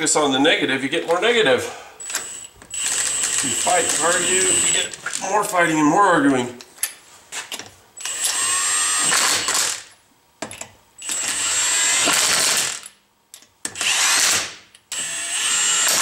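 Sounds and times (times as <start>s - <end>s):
impact wrench whining: 2.0s - 5.3s, 8.0s - 10.0s, 11.0s - 13.0s, 13.6s - 16.0s.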